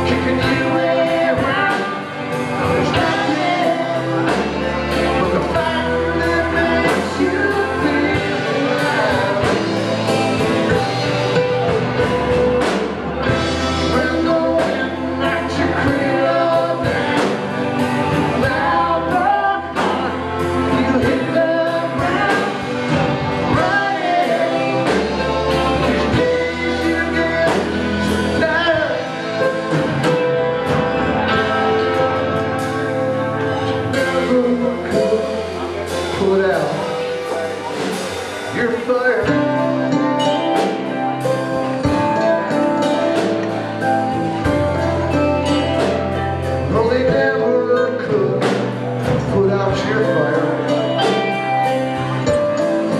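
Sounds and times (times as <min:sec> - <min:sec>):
drum kit beat: 0:00.0 - 0:52.9
electric guitar: 0:00.0 - 0:52.9
keyboard playing: 0:00.0 - 0:52.9
person singing: 0:00.0 - 0:52.9.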